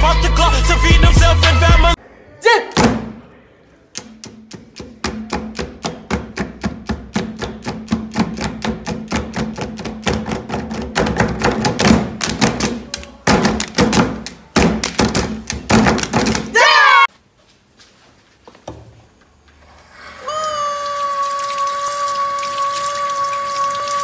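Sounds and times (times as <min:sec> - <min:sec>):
hand claps: 0:04.0 - 0:16.5
hands slapping wooden desk: 0:04.0 - 0:16.5.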